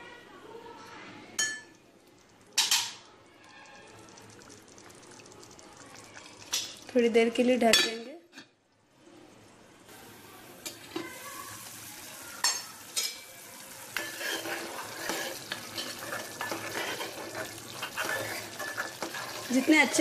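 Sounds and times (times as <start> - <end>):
curry sizzling in oil: 1.4 - 8.6, 9.5 - 20.0
spoon stirring and scraping: 13.9 - 20.0.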